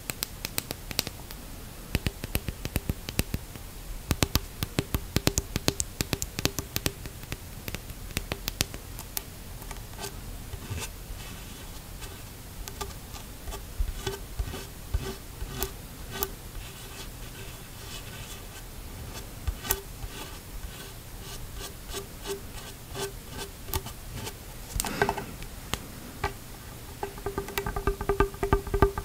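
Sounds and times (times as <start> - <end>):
fingernails tapping plastic tube: 1.9 - 3.4, 4.1 - 9.2, 26.2 - 29.0
handling noise: 24.5 - 29.0.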